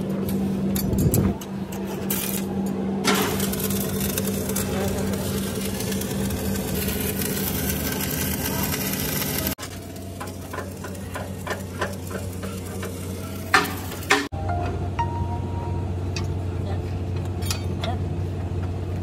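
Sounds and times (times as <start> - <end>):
low hum: 0.0 - 19.0
arc welding crackling: 1.1 - 14.3.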